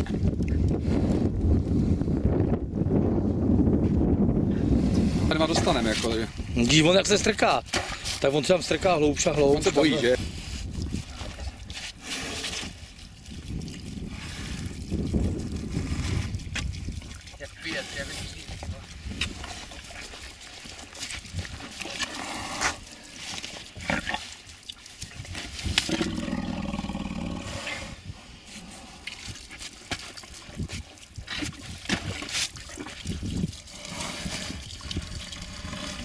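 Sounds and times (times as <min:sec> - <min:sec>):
water poured from plastic bottle: 0:09.6 - 0:26.4, 0:29.0 - 0:36.0.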